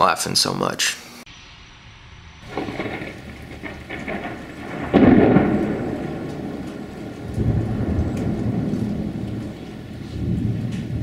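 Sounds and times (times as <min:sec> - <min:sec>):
steady rain: 0:02.4 - 0:11.0
thunder clap rumbling: 0:02.4 - 0:11.0.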